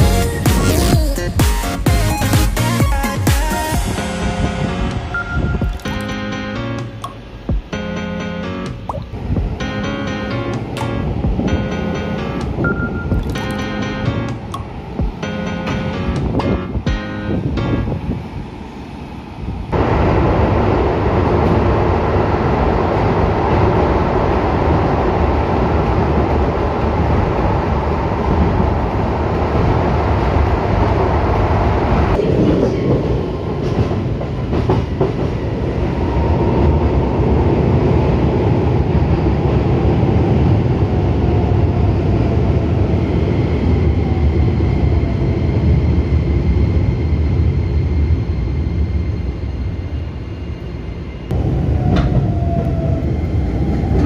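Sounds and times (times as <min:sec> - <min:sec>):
rail clacks: 0:08.7 - 0:17.9, 0:32.0 - 0:36.3
train wheels rumbling on rail: 0:09.2 - 0:54.0.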